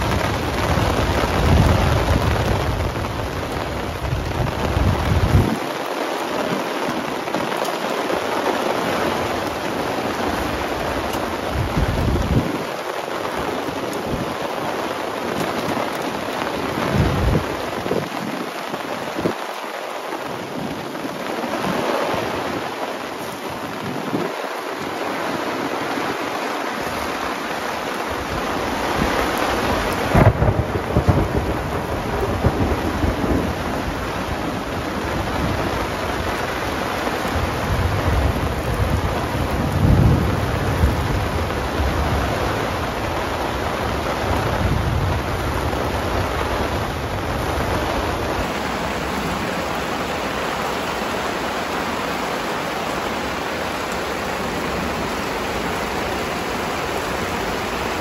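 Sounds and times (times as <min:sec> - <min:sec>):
thunder rumbling: 0:00.0 - 0:18.2, 0:28.1 - 0:58.0
heavy rain on grass: 0:00.0 - 0:58.0
rain pattering on a tarp: 0:00.0 - 0:58.0
water running off tarp: 0:00.0 - 0:58.0
thunder crack: 0:30.1 - 0:34.1.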